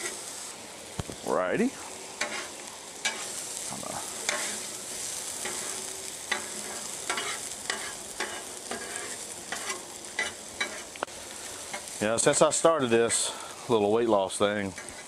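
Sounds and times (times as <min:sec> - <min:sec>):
vegetables and bacon sizzling in oil: 0:00.0 - 0:15.0
metal spatulas scraping griddle: 0:02.2 - 0:03.5, 0:04.1 - 0:10.9, 0:14.7 - 0:15.0.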